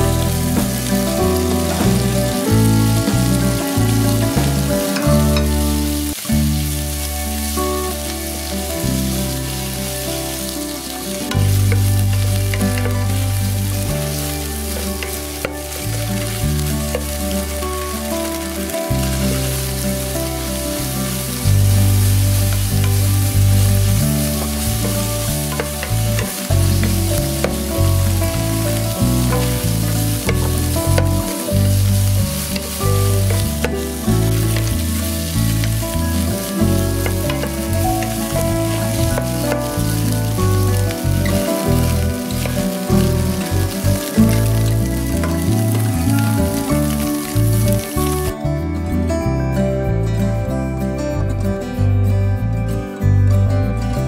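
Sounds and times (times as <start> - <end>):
food sizzling in a frying pan: 0.0 - 48.4
wooden spatula stirring: 21.7 - 48.3.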